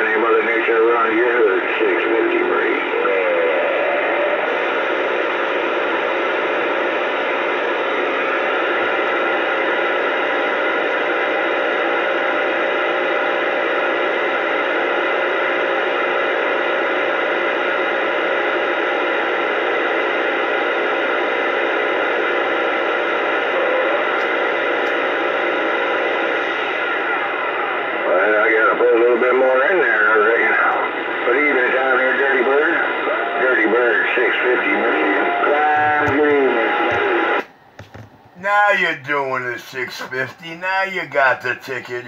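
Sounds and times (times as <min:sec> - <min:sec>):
radio static hiss: 0:00.0 - 0:42.0.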